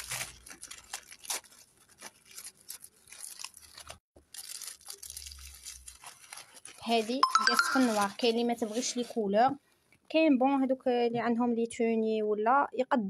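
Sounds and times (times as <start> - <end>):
paper packaging rustling: 0.0 - 9.2.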